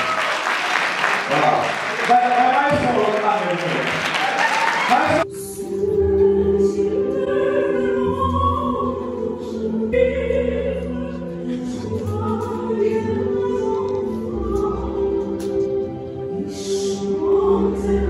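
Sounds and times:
musical accompaniment: 0.0s - 18.0s
gospel choir singing: 4.2s - 18.0s.

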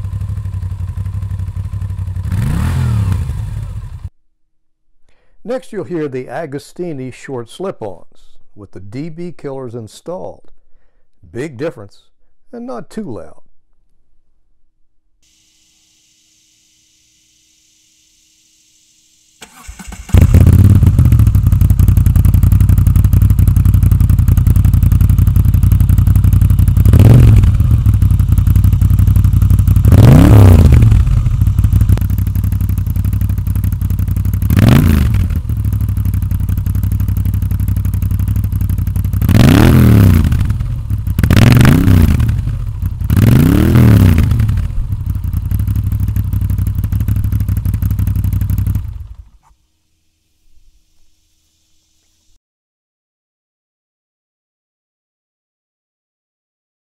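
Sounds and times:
motorcycle engine revving: 0.0s - 4.1s, 15.6s - 49.4s
motorcycle engine starting and idling: 0.0s - 4.1s, 15.2s - 49.6s.

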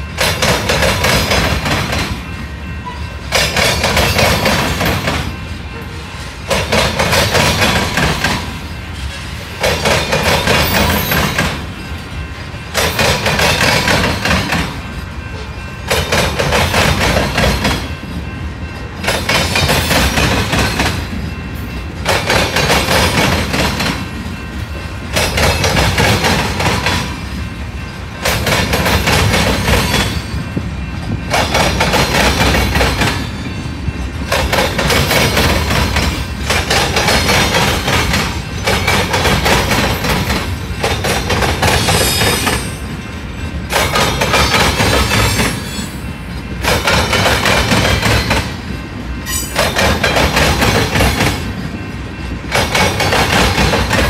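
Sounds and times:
freight train wheels clattering: 0.0s - 54.0s.

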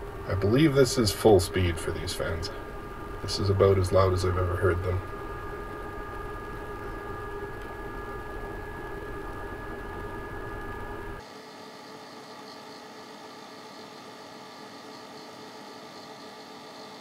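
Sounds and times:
thin steady hum: 0.0s - 11.2s
cooling fans whirring: 0.0s - 17.0s.

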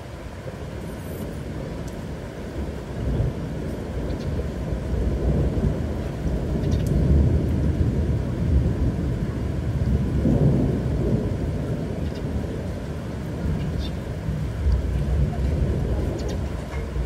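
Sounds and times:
rain: 0.0s - 17.0s
low rumbling thunder: 2.4s - 17.0s.

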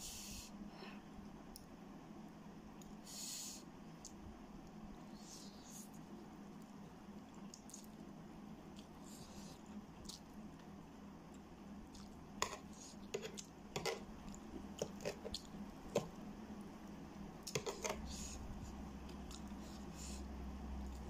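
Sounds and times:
wet chewing: 19.1s - 19.8s.

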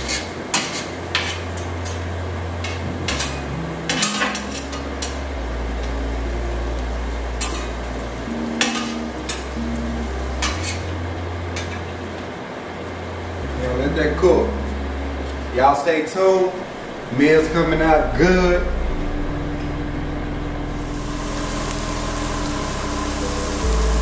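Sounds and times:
vegetables sizzling: 20.7s - 24.0s.

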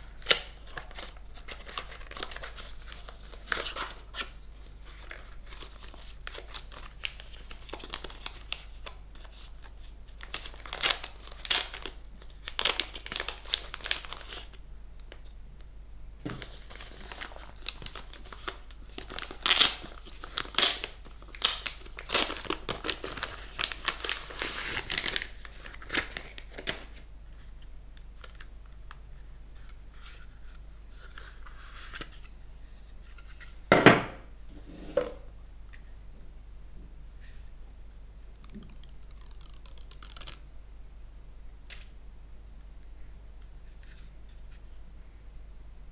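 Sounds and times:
plastic bag crinkling: 38.4s - 40.4s.

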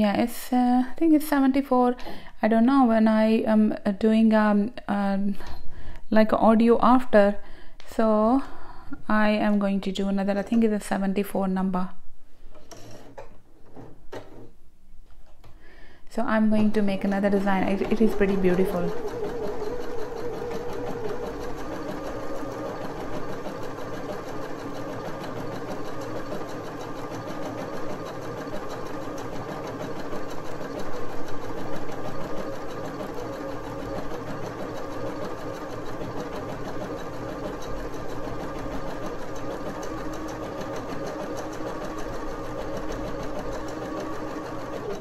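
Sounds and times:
sewing machine running: 16.4s - 45.0s.

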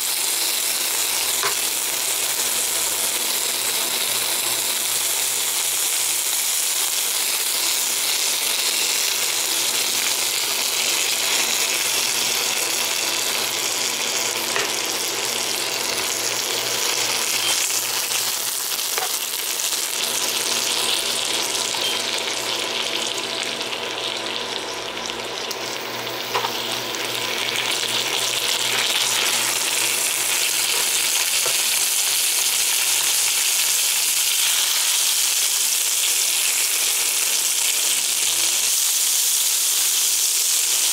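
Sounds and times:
meat sizzling in butter: 0.0s - 40.9s.

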